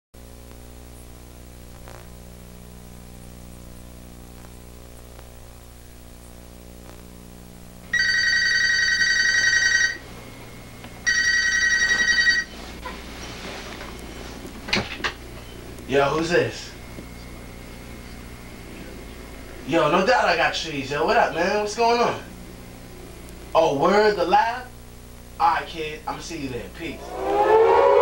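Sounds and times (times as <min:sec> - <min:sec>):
telephone ringer trilling: 0:07.9 - 0:10.0, 0:11.1 - 0:12.5
low hum: 0:26.8 - 0:28.0.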